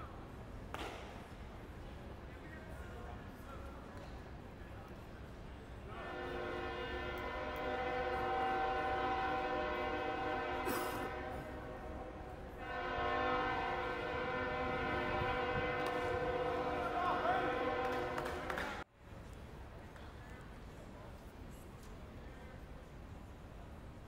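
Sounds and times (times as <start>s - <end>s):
train horn blasts: 5.9s - 18.8s.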